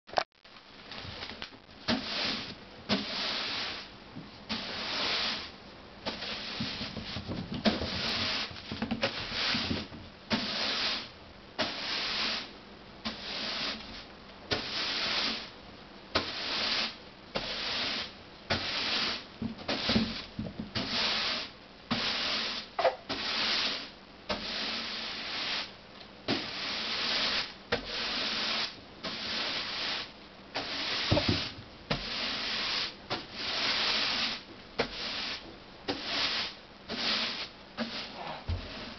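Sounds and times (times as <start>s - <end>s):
broom sweeping wooden floor: 0.8s - 38.9s.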